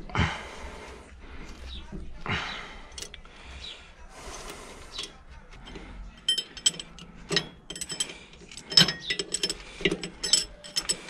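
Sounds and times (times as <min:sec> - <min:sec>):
metal clinks and clicks: 0:05.0 - 0:11.0.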